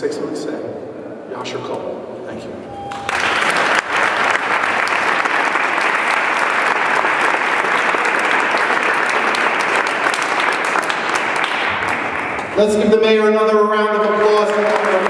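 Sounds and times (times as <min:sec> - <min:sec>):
audience applauding: 0:02.9 - 0:12.8, 0:13.7 - 0:15.0.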